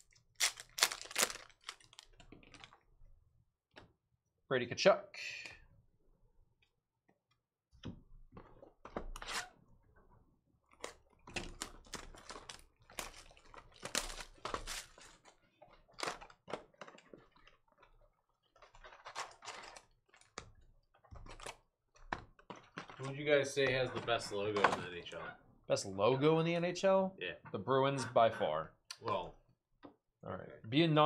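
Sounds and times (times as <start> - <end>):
plastic wrap crinkling and tearing: 0.0 - 2.8, 10.7 - 20.6
cardboard rustling: 0.4 - 2.8, 11.4 - 17.6, 18.5 - 20.4.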